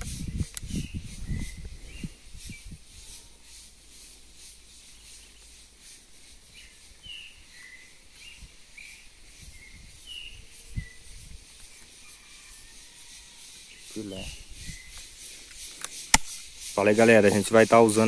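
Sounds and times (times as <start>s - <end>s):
bird chirping: 0.0s - 18.0s
insects chirring: 0.0s - 18.0s.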